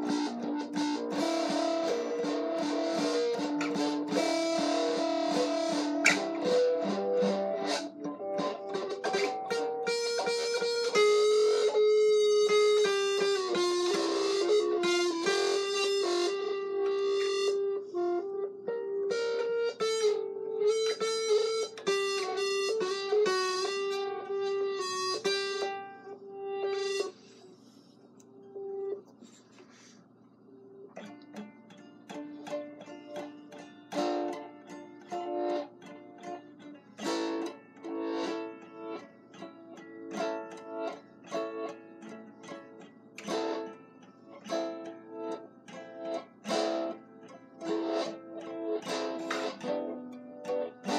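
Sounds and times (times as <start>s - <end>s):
sharp percussive hit on guitar: 0.0s - 11.8s, 45.7s - 50.9s
guitar chords: 0.0s - 50.9s.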